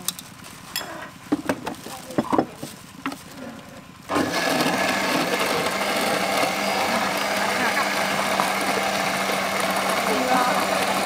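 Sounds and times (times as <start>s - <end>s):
electric blender running: 3.5s - 11.0s
plastic cups knocking and clicking: 5.2s - 11.0s.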